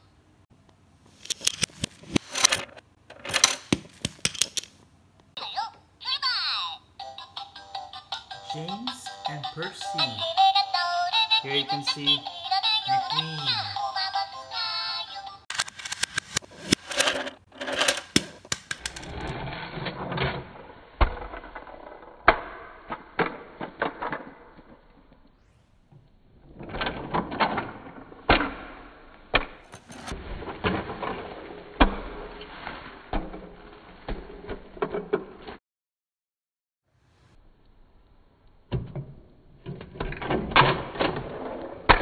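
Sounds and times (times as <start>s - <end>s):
plastic toy clicking and clattering: 1.2s - 4.8s, 15.5s - 19.3s.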